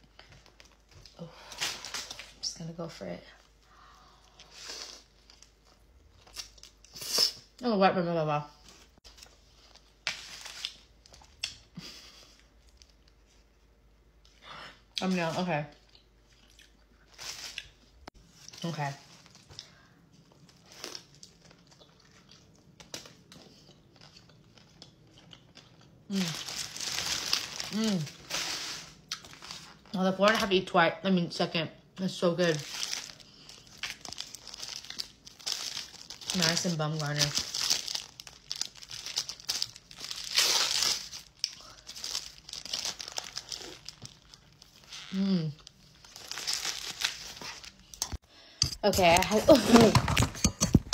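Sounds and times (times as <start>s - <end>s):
soft chewing: 15.7s - 26.1s
sandwich crunches: 20.4s - 29.9s, 32.6s - 36.4s, 37.3s - 45.0s, 45.6s - 47.8s
paper wrapper crinkling: 26.1s - 30.0s, 32.5s - 48.1s.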